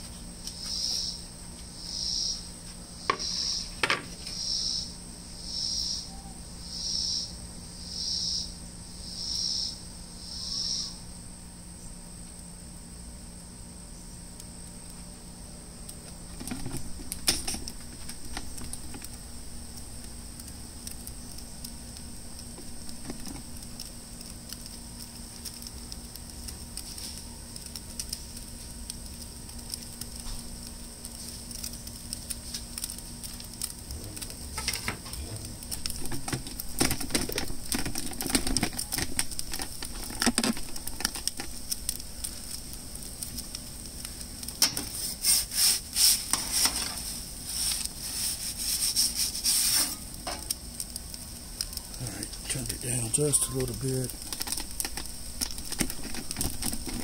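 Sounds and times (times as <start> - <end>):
gas burner hissing: 0.0 - 57.0
crackling ticks: 15.8 - 44.8, 50.1 - 57.0
knocks and rustles: 16.3 - 19.1, 22.5 - 23.5, 34.0 - 41.6, 54.1 - 57.0.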